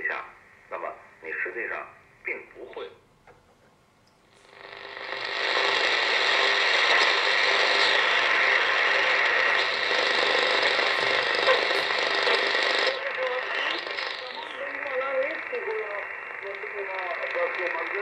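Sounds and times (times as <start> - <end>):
shortwave radio noise being tuned: 0.0 - 3.1, 4.3 - 18.0
faint steady radio tones: 0.0 - 3.4, 4.3 - 18.0.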